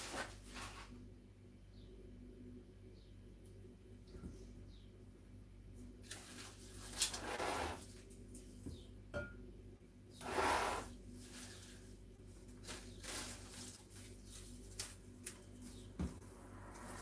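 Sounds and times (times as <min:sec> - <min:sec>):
flower stems rustling: 0:06.0 - 0:08.6, 0:11.1 - 0:16.0.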